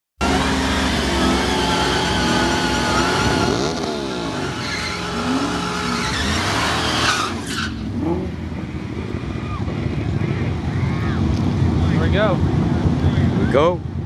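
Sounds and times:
tyres squealing in a burnout: 0:00.2 - 0:08.2
supercharged engines revving: 0:00.2 - 0:13.3.

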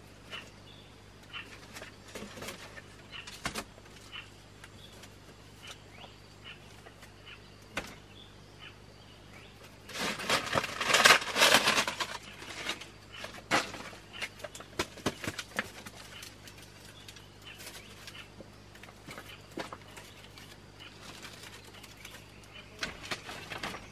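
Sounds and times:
cane strips rustling and crackling: 0:01.3 - 0:05.9, 0:09.6 - 0:23.9.

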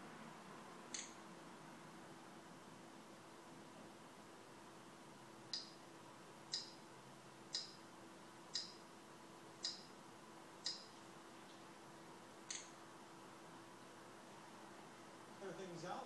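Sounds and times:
faint steady hum: 0:00.0 - 0:16.0
interface ticks: 0:06.5 - 0:06.8, 0:07.5 - 0:07.8, 0:08.6 - 0:08.8, 0:09.6 - 0:09.9, 0:10.6 - 0:10.9.

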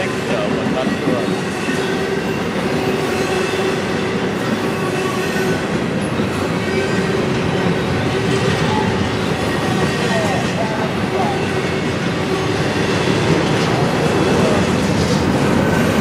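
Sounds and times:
freight train wheels on rail: 0:00.0 - 0:16.0.

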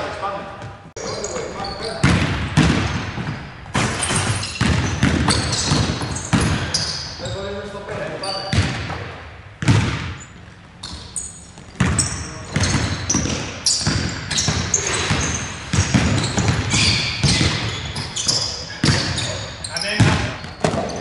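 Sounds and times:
sneakers squeaking on floor: 0:00.1 - 0:21.0
basketball bouncing on hardwood: 0:02.0 - 0:06.8, 0:09.6 - 0:10.2, 0:11.6 - 0:19.3, 0:20.0 - 0:21.0.

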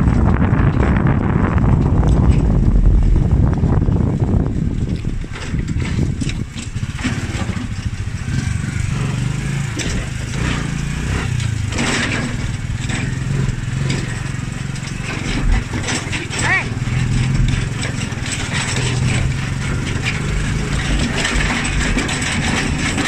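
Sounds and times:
rattles and knocks: 0:00.0 - 0:23.0
vehicle engine running: 0:00.0 - 0:23.0.

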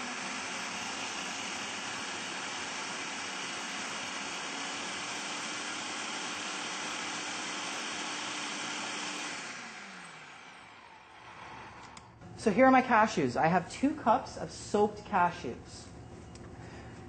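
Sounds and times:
food processor running: 0:00.0 - 0:12.2.

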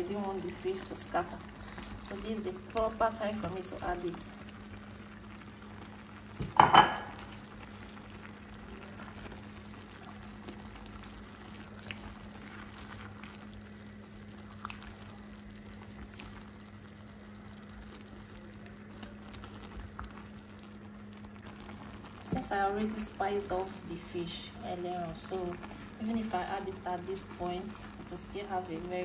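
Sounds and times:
low steady hum: 0:00.0 - 0:29.0
soup bubbling: 0:00.0 - 0:29.0.

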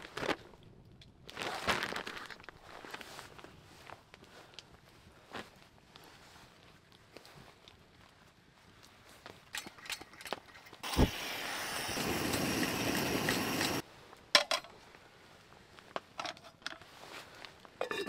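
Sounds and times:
stove hissing: 0:10.8 - 0:13.8.

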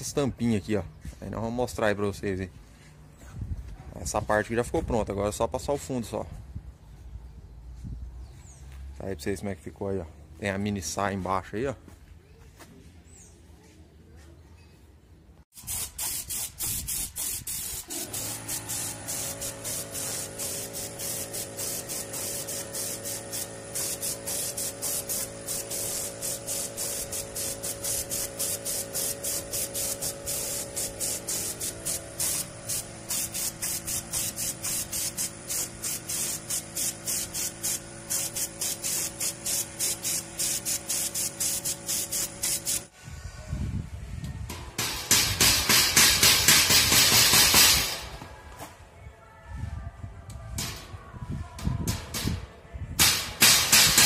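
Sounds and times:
spray gun hissing: 0:15.5 - 0:42.9.

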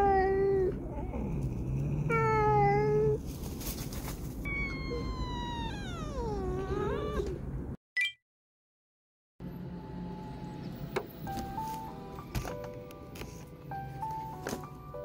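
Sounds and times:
cat yowling: 0:00.0 - 0:03.2, 0:04.5 - 0:07.4
cat meowing: 0:04.5 - 0:07.4.

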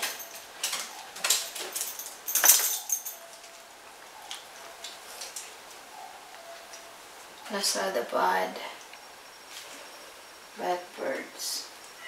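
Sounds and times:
light clicks and clinks: 0:00.0 - 0:03.6.

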